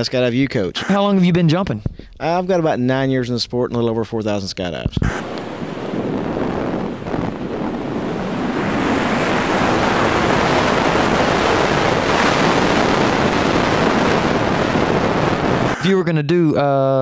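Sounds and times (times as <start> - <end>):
wind on microphone: 5.0 - 15.8.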